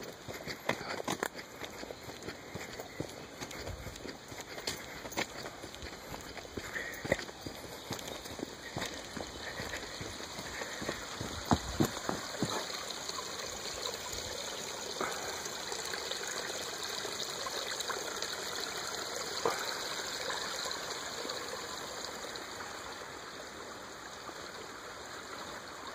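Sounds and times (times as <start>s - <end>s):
footsteps on wooden bridge: 0.0s - 12.8s
creek trickling over rocks: 0.0s - 25.9s.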